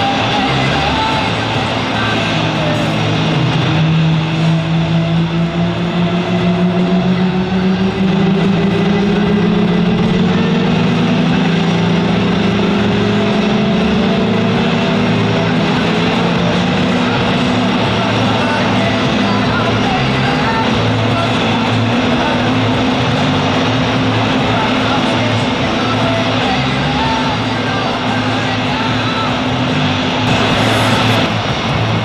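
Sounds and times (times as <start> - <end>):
background music: 0.0 - 32.0
jet engine spooling up: 29.5 - 32.0.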